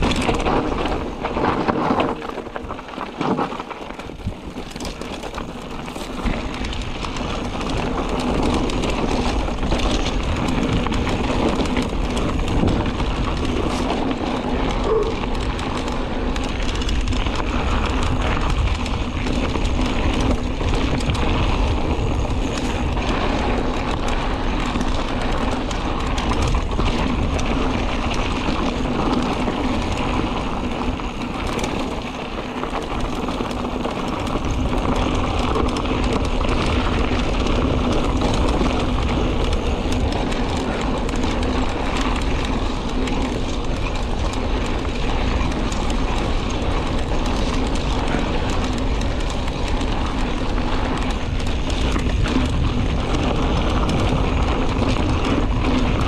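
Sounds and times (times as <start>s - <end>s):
bike rattling over bumps: 0.0s - 56.0s
bike tyres crunching on gravel: 0.0s - 56.0s
wind buffeting microphone: 0.0s - 56.0s.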